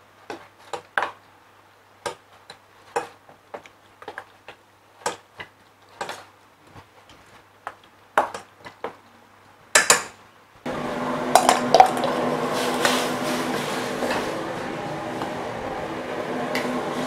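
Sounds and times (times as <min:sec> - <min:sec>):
gas burner roaring: 0:10.7 - 0:17.0.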